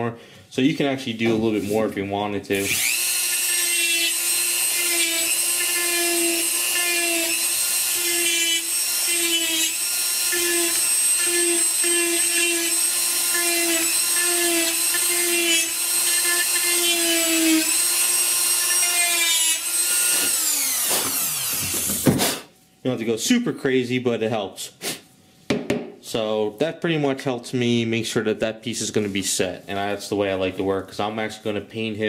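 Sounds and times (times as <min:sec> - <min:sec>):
rotary tool whining: 0:02.6 - 0:22.1.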